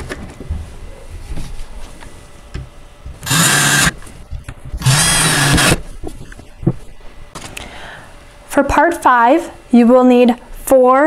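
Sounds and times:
cordless drill driving screws: 3.2 - 4.0, 4.8 - 5.8.

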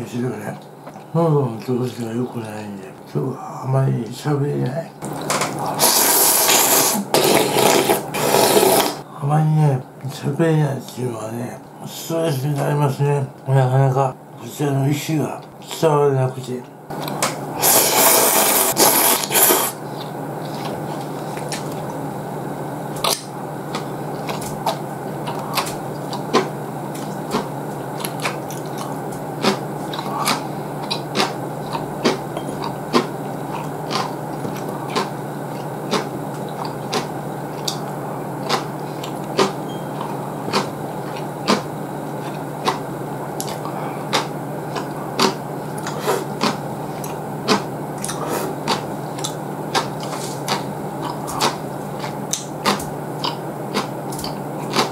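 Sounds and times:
low background hum: 0.0 - 54.9
noodles slurped loudly: 5.6 - 9.0, 17.6 - 19.8
wet chewing clicks: 23.0 - 54.9.

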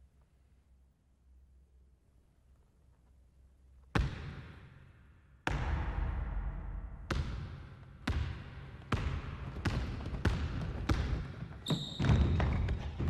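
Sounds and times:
basketball bouncing on wooden floor: 7.1 - 13.0.

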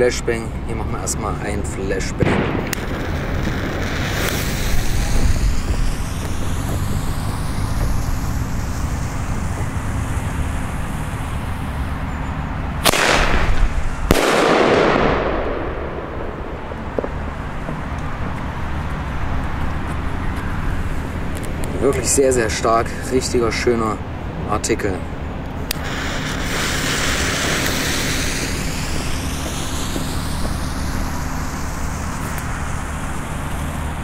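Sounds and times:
firework shell bang: 2.2 - 6.9, 12.8 - 17.2
firework launch pop: 2.2 - 7.1, 12.8 - 17.2.

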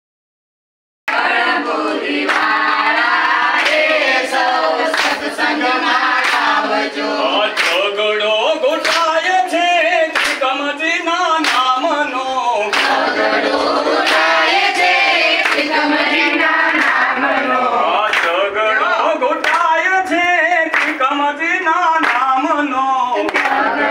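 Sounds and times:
hands clapping: 1.1 - 8.1, 8.7 - 9.4, 10.0 - 10.6, 11.4 - 11.9, 12.6 - 18.5, 19.2 - 21.2, 22.0 - 22.5, 23.2 - 23.9
group singing devotional song: 1.1 - 23.9.

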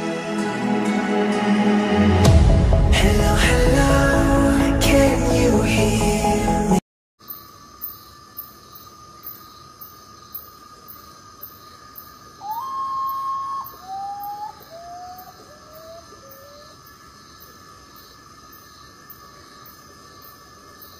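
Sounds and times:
bird whistling notes: 12.4 - 16.6.

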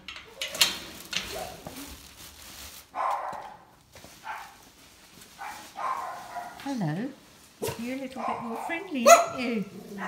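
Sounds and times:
dog barking: 2.9 - 4.6, 5.4 - 6.7, 7.6 - 10.0.

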